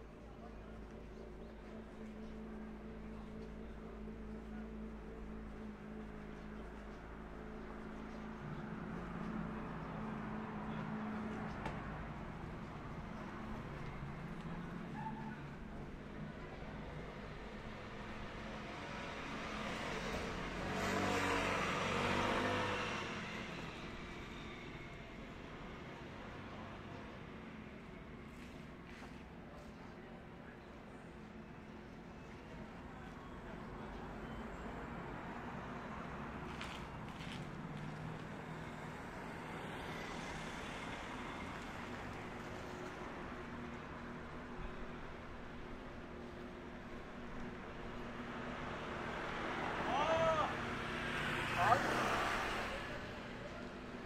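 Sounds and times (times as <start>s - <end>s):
street traffic hum: 0.0s - 54.0s
vehicle passing by: 18.9s - 24.6s, 48.0s - 54.0s
vehicle passing close by: 19.6s - 23.6s.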